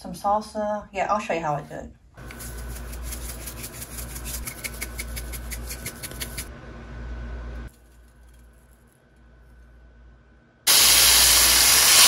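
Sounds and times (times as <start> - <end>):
steady low hum: 2.0 - 10.7
meat sizzling in frying pan: 10.7 - 12.0.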